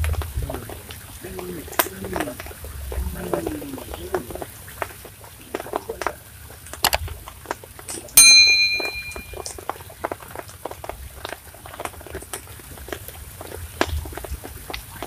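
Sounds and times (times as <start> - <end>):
bell ding: 8.2 - 9.4.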